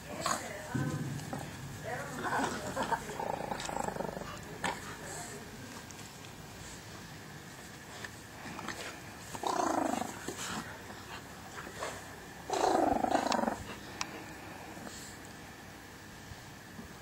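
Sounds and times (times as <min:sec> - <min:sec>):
dog growling: 0:02.2 - 0:05.4, 0:08.4 - 0:15.2.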